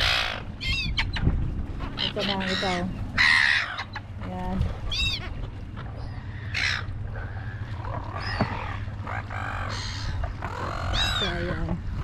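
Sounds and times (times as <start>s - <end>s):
gulls squawking: 0.0s - 12.0s.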